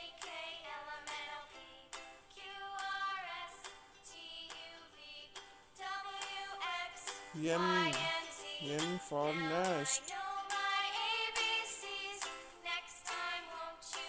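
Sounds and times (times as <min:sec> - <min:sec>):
children's music with high voice: 0:05.8 - 0:12.3.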